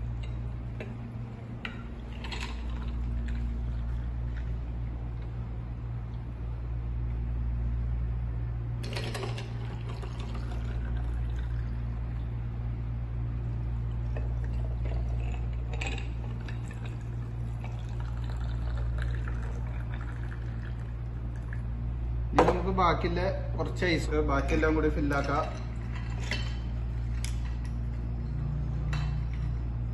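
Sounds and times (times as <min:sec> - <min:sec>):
low hum: 0:00.0 - 0:29.9
tea pouring into glasses: 0:08.8 - 0:12.1, 0:14.0 - 0:21.7.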